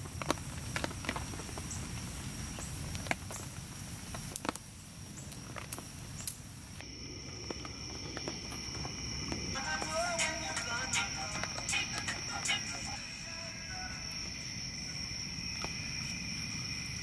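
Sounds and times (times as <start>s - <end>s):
meat grilling over charcoal: 0.0s - 13.0s
faint steady high tone: 8.7s - 15.5s.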